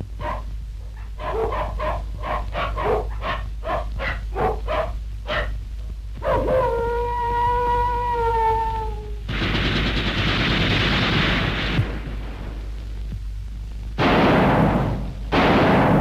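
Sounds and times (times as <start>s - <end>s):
low steady hum: 0.0s - 16.0s
dog barking: 0.2s - 5.6s, 6.2s - 6.8s.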